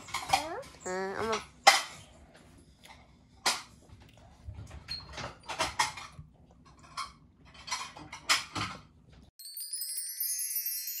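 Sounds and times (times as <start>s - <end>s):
high sparkling chime jingle: 9.4s - 11.0s.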